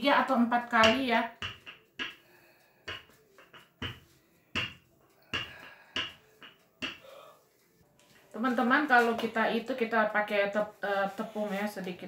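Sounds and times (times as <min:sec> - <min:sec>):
rolling pin knocking on table: 0:00.8 - 0:02.2, 0:02.9 - 0:04.0, 0:04.6 - 0:04.8, 0:05.4 - 0:07.0.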